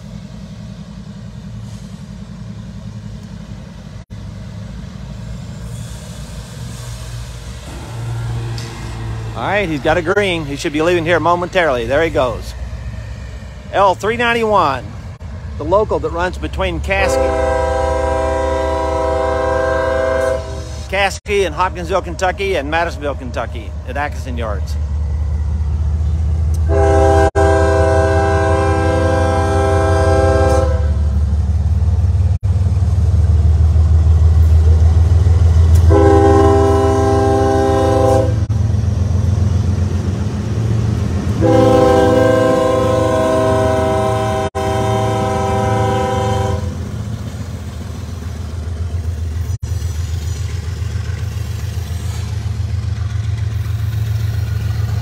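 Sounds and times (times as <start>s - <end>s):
diesel engines rumbling: 0.0s - 55.0s
locomotive air horn blasts: 16.9s - 20.9s, 26.6s - 31.2s, 35.8s - 38.5s, 41.4s - 46.9s.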